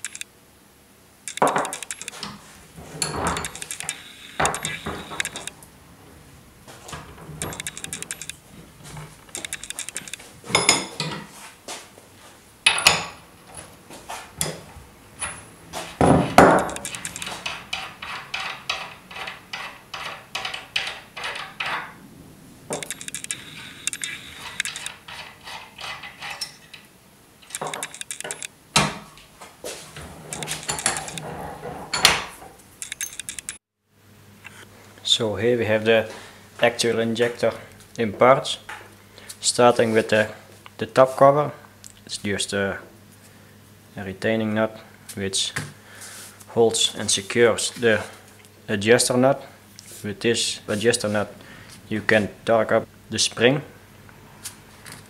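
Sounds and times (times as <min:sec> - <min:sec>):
metal clinking and knocking: 0:01.3 - 0:05.5, 0:12.7 - 0:13.2, 0:15.2 - 0:22.0, 0:30.2 - 0:33.5
nuts turning on threads: 0:01.3 - 0:05.7, 0:06.7 - 0:10.3, 0:15.2 - 0:22.0, 0:22.7 - 0:28.5, 0:30.0 - 0:32.2, 0:32.8 - 0:33.6.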